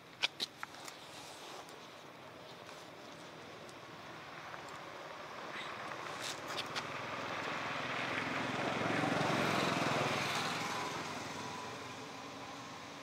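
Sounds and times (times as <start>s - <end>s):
vehicle engine passing by: 5.4s - 12.9s.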